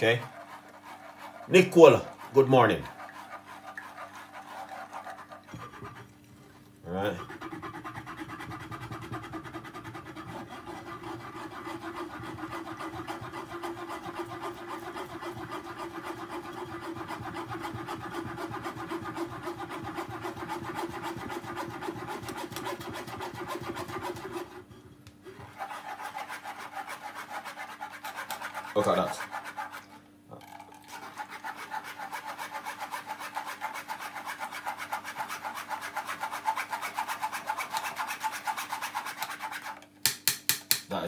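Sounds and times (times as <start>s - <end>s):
metal spoon scraping a sieve: 0.0s - 6.1s.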